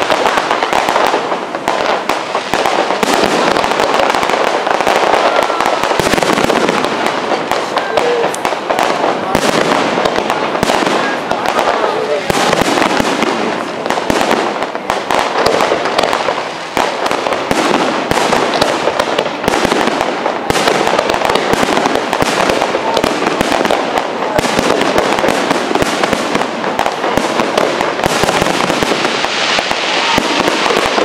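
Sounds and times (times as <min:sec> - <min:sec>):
fireworks bangs and crackling: 0:00.0 - 0:31.0.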